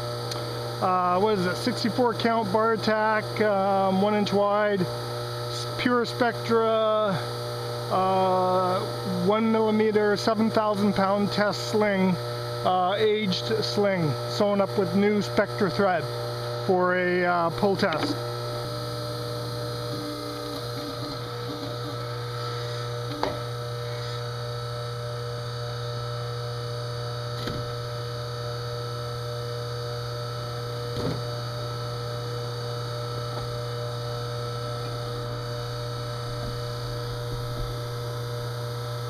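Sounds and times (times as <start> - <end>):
low hum: 33.0 - 39.0.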